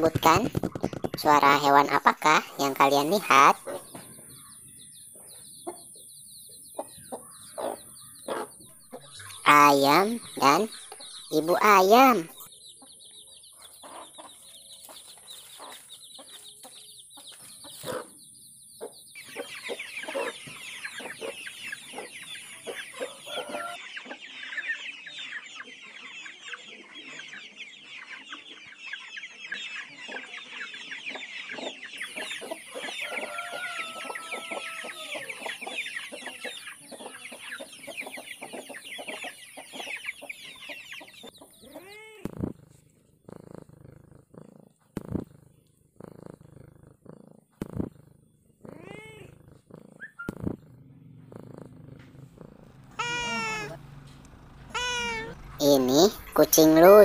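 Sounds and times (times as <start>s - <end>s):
hens clucking: 0.0s - 4.2s, 6.7s - 12.3s, 18.8s - 24.7s, 29.8s - 43.7s, 47.0s - 57.0s.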